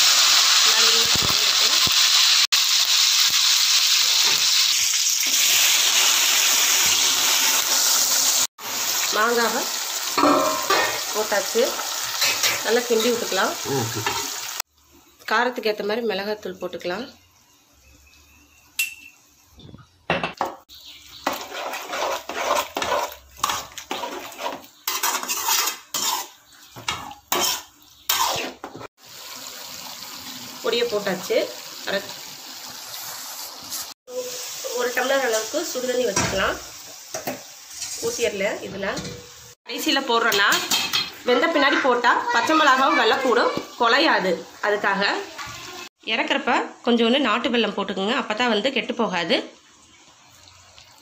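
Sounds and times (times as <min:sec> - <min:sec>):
leaves sizzling in hot oil: 0:00.0 - 0:19.6, 0:20.7 - 0:51.0
metal ladle scraping a pot: 0:21.2 - 0:28.6.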